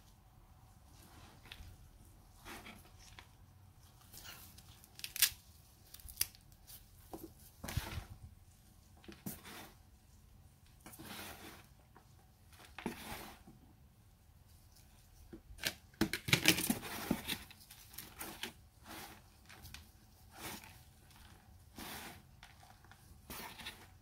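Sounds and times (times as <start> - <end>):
hand raking through soil: 9.2 - 9.8, 10.9 - 11.8, 18.0 - 24.0.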